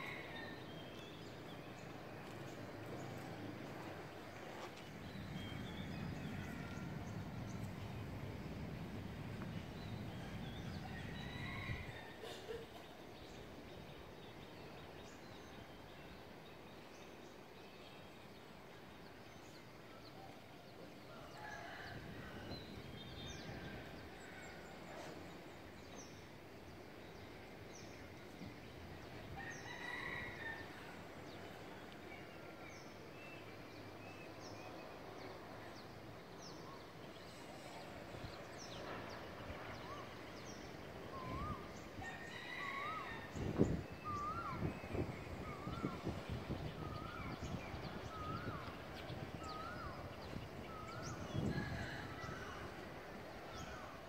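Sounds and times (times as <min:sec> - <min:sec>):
steady background hum: 0:00.0 - 0:14.1.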